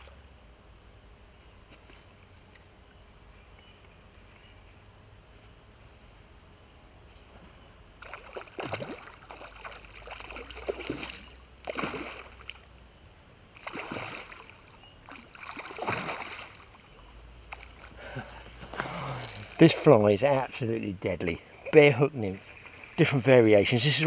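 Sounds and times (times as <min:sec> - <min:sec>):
fish thrashing and splashing: 0:08.0 - 0:12.7, 0:13.6 - 0:16.9.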